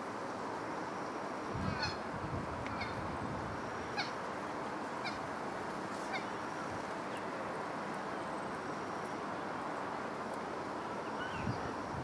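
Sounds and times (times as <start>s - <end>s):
steady background hiss: 0.0s - 12.0s
waterbird calls: 5.0s - 5.2s.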